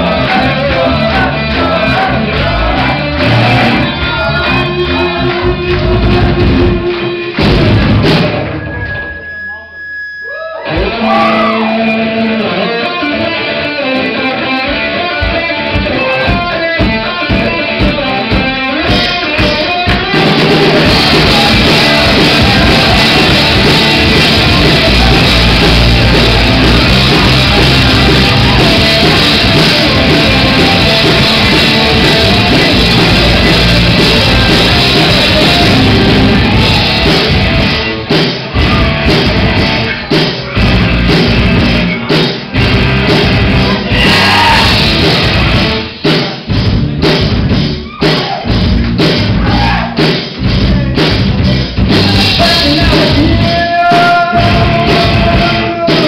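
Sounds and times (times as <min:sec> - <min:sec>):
rock band playing live: 0:00.0 - 0:10.0, 0:10.6 - 0:56.0.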